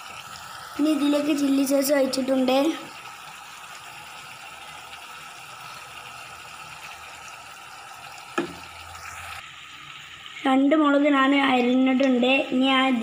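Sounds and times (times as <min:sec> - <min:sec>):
onions sizzling in a frying pan: 0:00.0 - 0:13.0.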